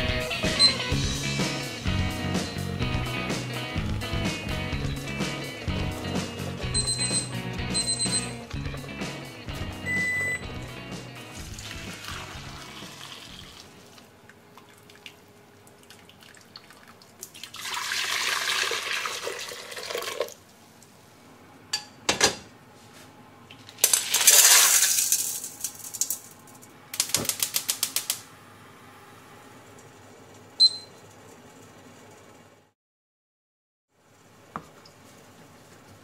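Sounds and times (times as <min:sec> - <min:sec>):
liquid pouring into pot: 0:11.3 - 0:20.4.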